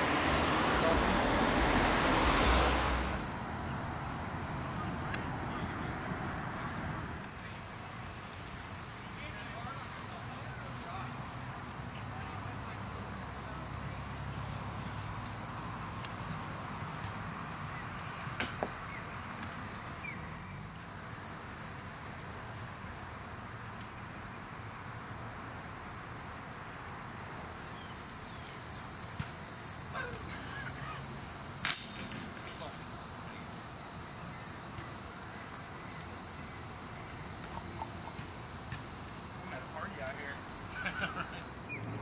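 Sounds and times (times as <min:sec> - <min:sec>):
insects trilling: 0:00.1 - 0:42.0
sharp ringing hit: 0:31.6 - 0:32.7.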